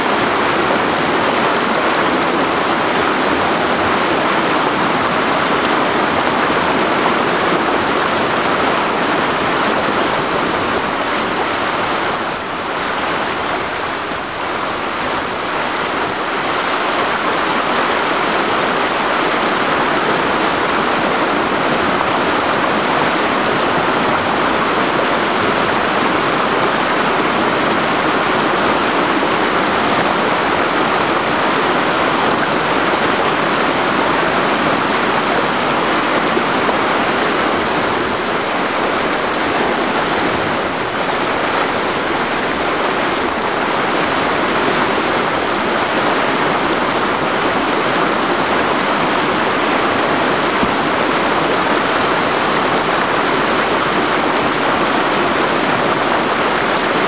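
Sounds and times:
rushing whitewater: 0.0s - 57.0s.

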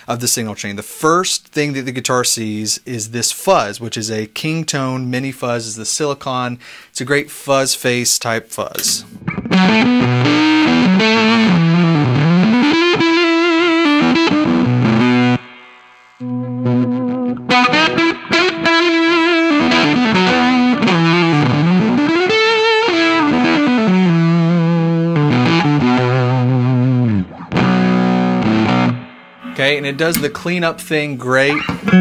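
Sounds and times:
distorted electric guitar lead: 9.0s - 32.0s.

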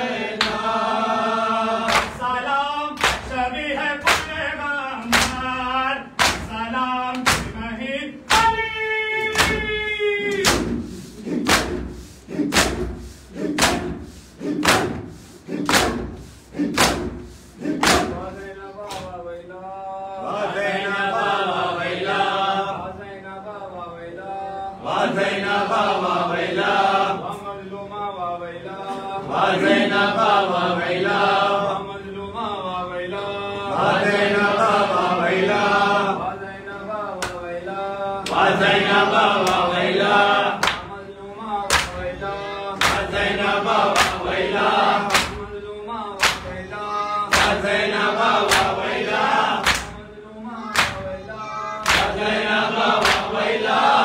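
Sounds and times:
men chanting a lament: 0.0s - 54.0s
men slapping chests in unison: 0.2s - 0.7s, 1.8s - 19.2s, 37.2s - 37.5s, 38.2s - 41.0s, 41.6s - 42.1s, 42.8s - 45.6s, 46.2s - 46.6s, 47.3s - 50.0s, 50.7s - 51.1s, 51.8s - 54.0s.

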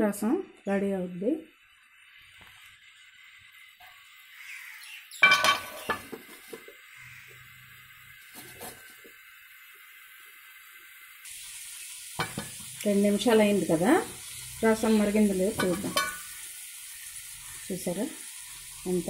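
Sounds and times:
pot lid clinking on pot: 5.2s - 6.2s, 15.6s - 16.3s.

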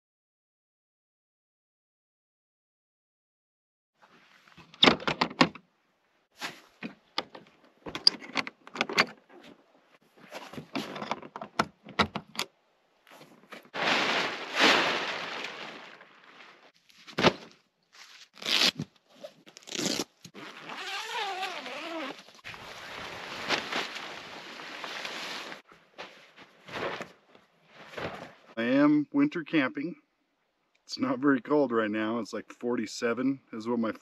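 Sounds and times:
metal latch clicks: 7.2s - 9.3s
tent bag rustling and knocking: 20.5s - 28.5s.

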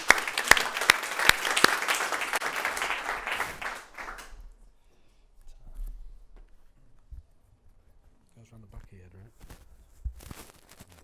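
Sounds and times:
audience applauding: 0.0s - 4.4s
sharp loud claps: 0.0s - 4.4s.

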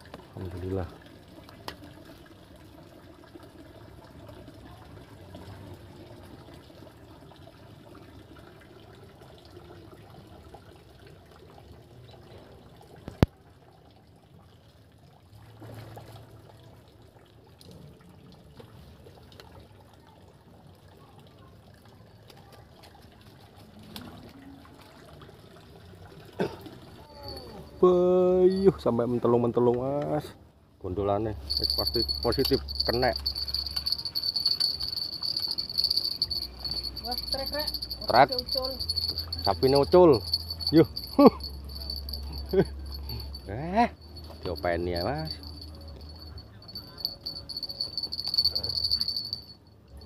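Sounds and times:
water trickling and splashing: 0.0s - 30.4s, 31.0s - 50.0s.

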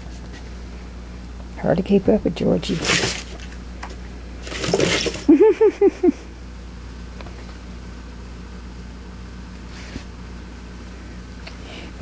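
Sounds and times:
room hum: 0.0s - 12.0s
person laughing: 5.2s - 6.4s.

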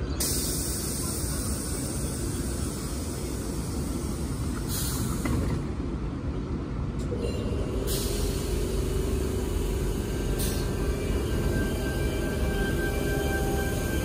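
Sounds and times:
low train rumble: 0.0s - 14.0s
air hissing: 0.1s - 5.7s, 7.1s - 14.0s
high electric tone: 9.8s - 14.0s.

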